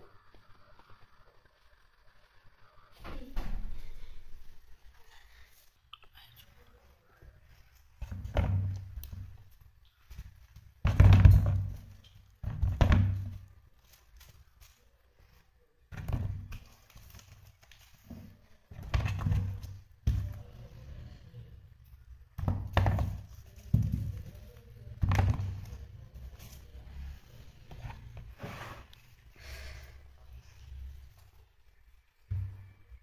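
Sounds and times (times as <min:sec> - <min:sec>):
vegetables knocking in plastic tub: 0:08.0 - 0:09.4, 0:10.8 - 0:13.5, 0:18.1 - 0:20.4, 0:22.4 - 0:24.3, 0:25.0 - 0:25.7.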